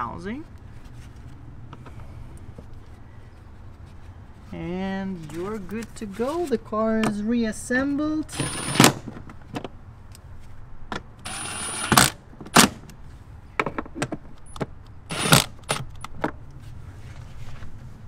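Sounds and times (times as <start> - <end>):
power tool motor whirring: 8.3 - 9.0, 11.3 - 12.2, 15.1 - 15.8.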